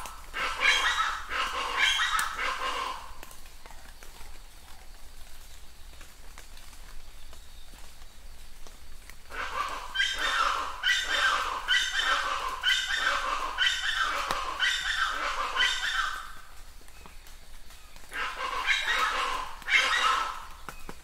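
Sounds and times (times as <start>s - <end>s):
animal calling: 0.0s - 3.3s, 9.3s - 16.5s, 18.1s - 20.6s.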